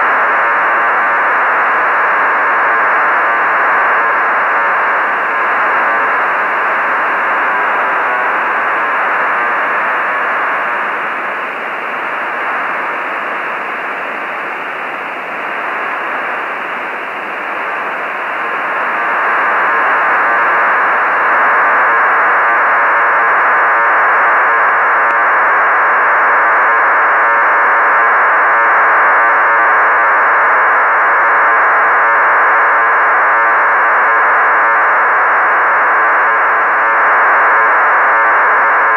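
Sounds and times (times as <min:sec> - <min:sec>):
radio receiver hiss: 0:04.2 - 0:22.0.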